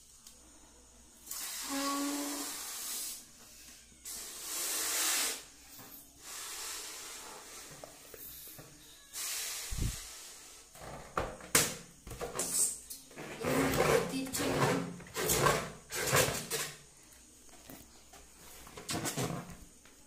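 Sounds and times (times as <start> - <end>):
breath blown into balloon: 1.3 - 3.2, 4.1 - 5.5.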